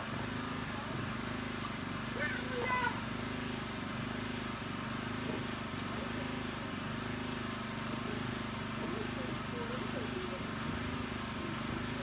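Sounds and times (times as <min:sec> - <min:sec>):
insects chirping: 0:00.0 - 0:12.0
light click: 0:05.7 - 0:06.0.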